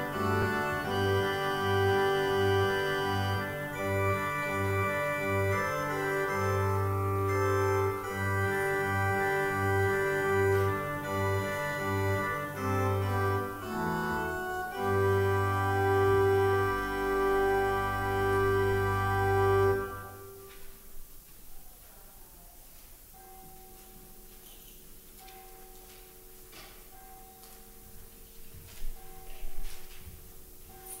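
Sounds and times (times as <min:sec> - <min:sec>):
organ music: 0:00.0 - 0:20.8.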